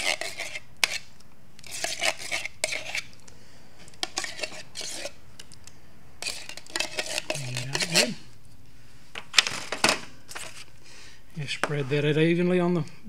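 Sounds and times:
utensil scraping inside tin can: 0.0 - 3.1, 4.0 - 5.2, 6.2 - 8.2.

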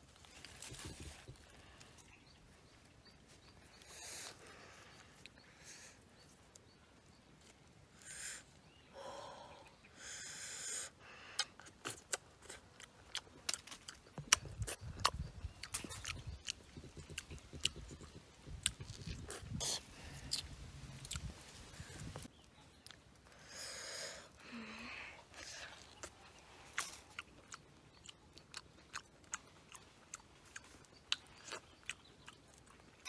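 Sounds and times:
person chewing orange: 11.4 - 23.4, 24.2 - 33.0.

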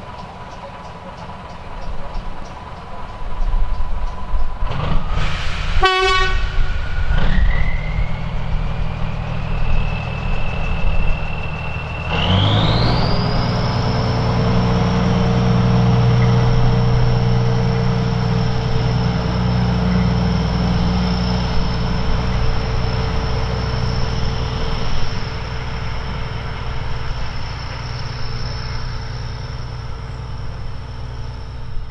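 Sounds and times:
diesel locomotive engine rumble: 0.0 - 31.9
high-pitched whine: 6.4 - 31.9.

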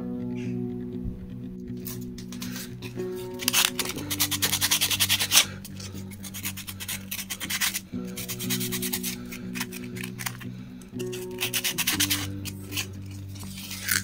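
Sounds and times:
sandpaper rubbing wood: 3.4 - 10.4, 11.0 - 14.0.

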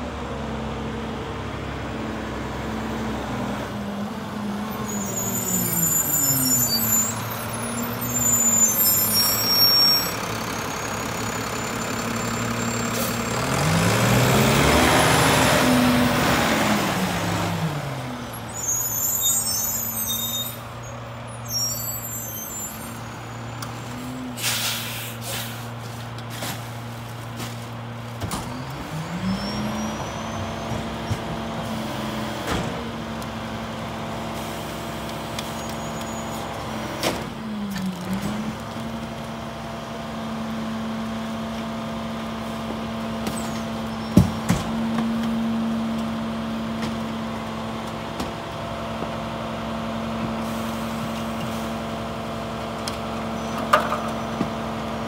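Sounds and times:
diesel truck engine revving and idling: 0.0 - 20.0, 25.1 - 55.0
air brake hissing: 24.4 - 25.8.

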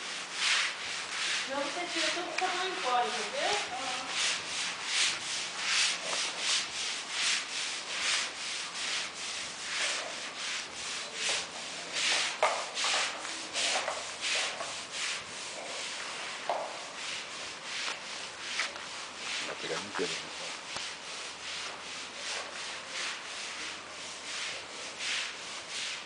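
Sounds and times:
footsteps on wet concrete: 0.5 - 6.5, 11.2 - 14.8, 17.4 - 21.0.

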